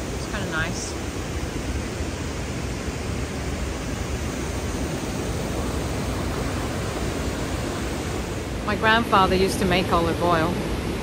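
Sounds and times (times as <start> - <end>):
river water rushing over weir: 0.0 - 11.0.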